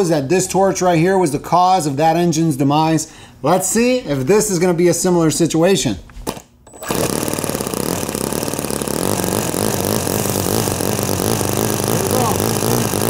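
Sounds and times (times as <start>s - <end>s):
model engine running: 6.8s - 13.0s.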